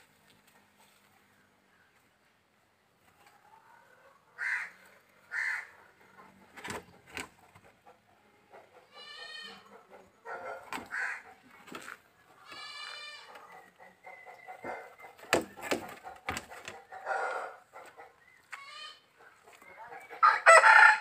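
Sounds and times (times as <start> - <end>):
drawn-out animal calls: 7.4 - 20.1.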